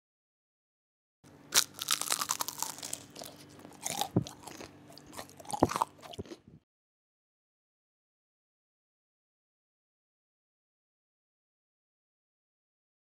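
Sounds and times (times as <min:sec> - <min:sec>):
crisp fried snacks crunching: 0:01.5 - 0:06.4.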